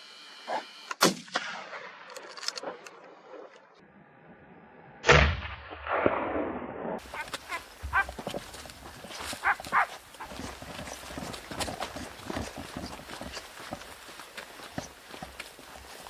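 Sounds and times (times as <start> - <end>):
sharp crack: 5.0 - 7.0
short pitched calls: 7.0 - 11.1
footsteps crunching on dry trail: 7.0 - 16.0.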